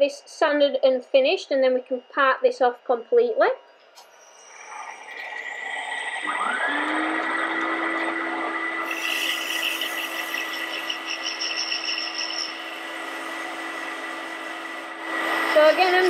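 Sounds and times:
wood lathe motor running: 4.0s - 16.0s
sanding hiss on spinning wood: 8.8s - 16.0s.

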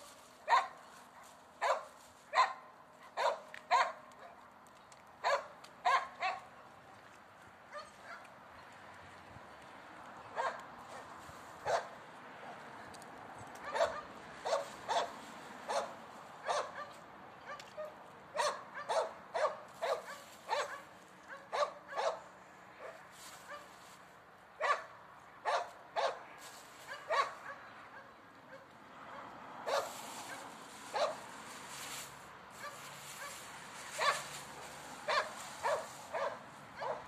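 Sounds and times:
animal barking calls: 13.6s - 23.7s, 26.9s - 28.7s, 32.6s - 34.3s, 35.0s - 37.0s.

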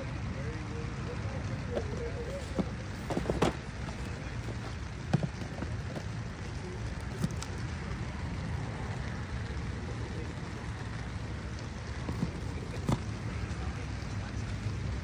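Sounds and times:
rain pattering: 0.0s - 15.0s.

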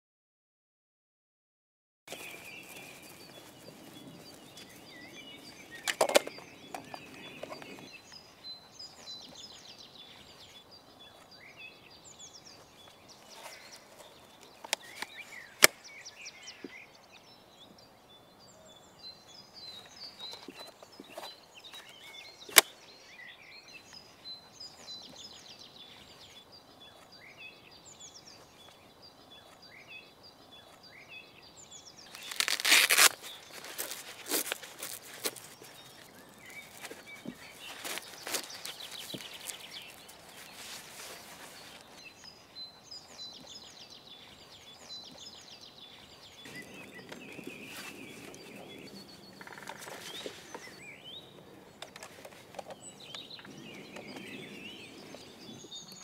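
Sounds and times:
birds chirping and trilling: 2.1s - 56.0s
plastic harness clicks: 5.8s - 7.7s.

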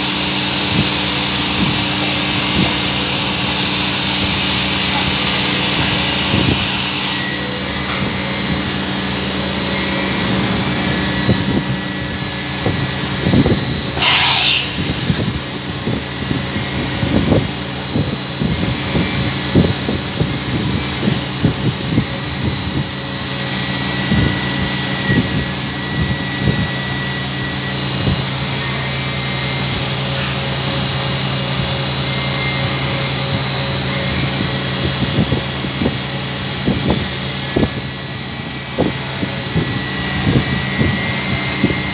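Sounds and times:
brief hiss: 14.0s - 15.2s.

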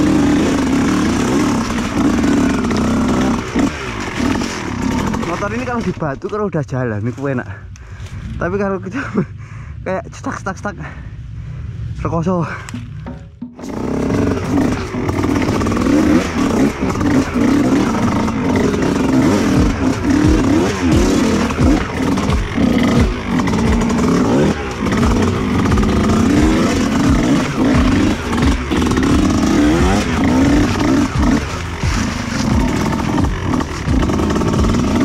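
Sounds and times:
two-stroke motorbike engine revving: 0.0s - 6.3s, 13.6s - 35.0s
knocks and clatter over rough ground: 0.0s - 9.2s, 12.5s - 35.0s.

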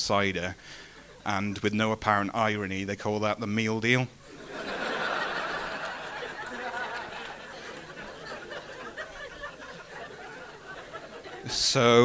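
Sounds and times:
audience laughing: 4.3s - 12.0s.

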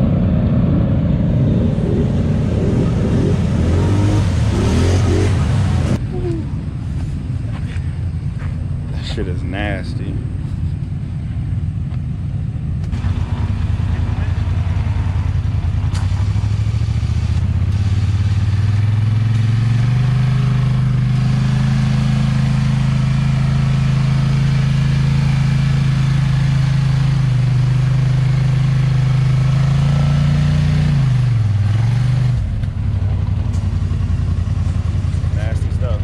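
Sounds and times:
atv engine revving: 0.0s - 6.0s, 12.8s - 36.0s.

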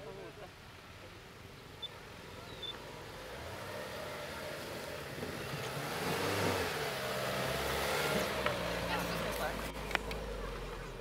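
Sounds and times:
car engine driving over dirt: 1.8s - 11.0s.

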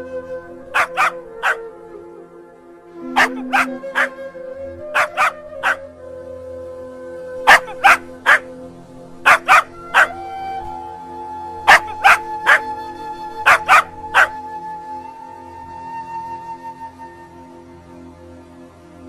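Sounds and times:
soft background music: 0.0s - 19.0s
puppy yipping: 0.7s - 1.6s, 3.2s - 4.1s, 4.9s - 5.8s, 7.5s - 8.5s, 9.2s - 10.2s, 11.7s - 12.7s, 13.4s - 14.4s.

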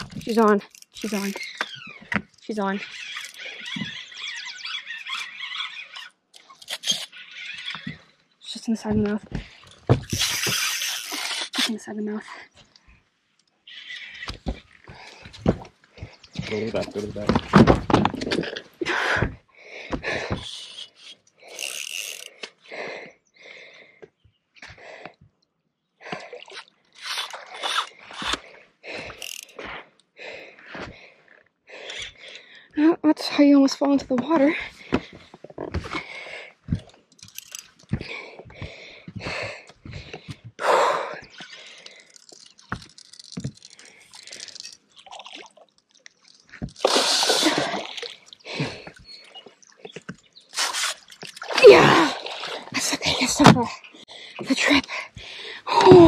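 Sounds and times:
water splashing and sloshing: 0.0s - 11.8s, 26.0s - 29.6s, 41.2s - 56.0s
fish splashing at water surface: 42.0s - 49.7s.

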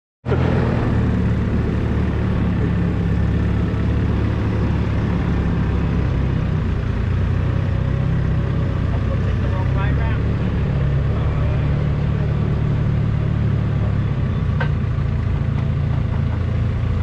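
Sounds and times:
diesel engine running steadily: 0.2s - 17.0s.

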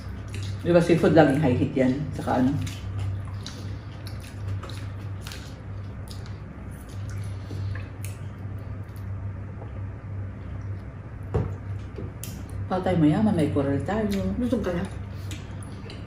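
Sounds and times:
wet chewing and slurping: 0.0s - 0.7s, 2.2s - 9.2s
low steady hum: 0.0s - 16.0s.

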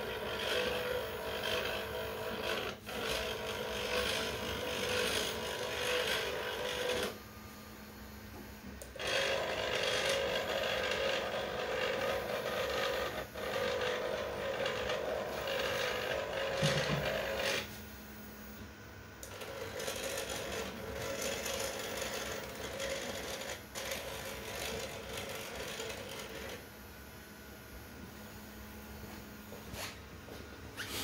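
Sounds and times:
stepper motors whining: 8.7s - 17.8s, 19.2s - 26.6s.

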